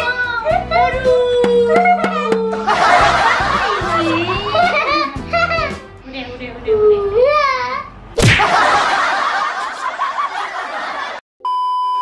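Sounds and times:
child laughing: 0:01.2 - 0:05.9
sudden bang: 0:01.4 - 0:03.8.

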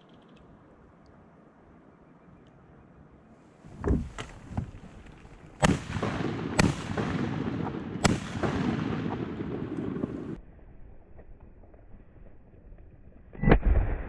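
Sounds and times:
shotgun shots: 0:05.6 - 0:10.4.

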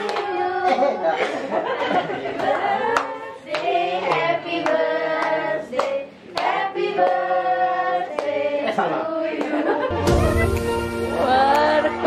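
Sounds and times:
people clapping in time: 0:00.0 - 0:00.4, 0:02.3 - 0:07.3, 0:11.4 - 0:11.9
group singing a celebration song: 0:00.0 - 0:12.0.

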